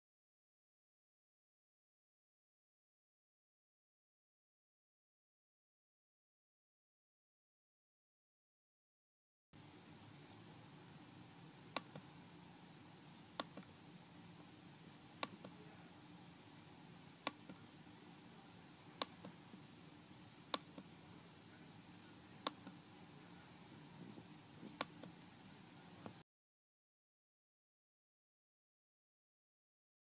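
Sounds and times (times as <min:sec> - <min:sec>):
faint hiss and hum: 0:09.6 - 0:26.2
computer mouse clicking: 0:11.7 - 0:12.0, 0:13.4 - 0:13.7, 0:15.2 - 0:15.6, 0:24.6 - 0:25.1.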